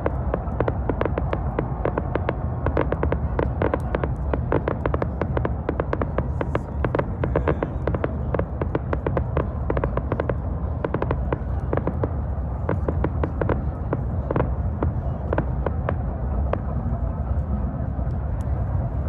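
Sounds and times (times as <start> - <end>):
fireworks crackling: 0.0 - 17.4
low rumble: 0.0 - 19.0.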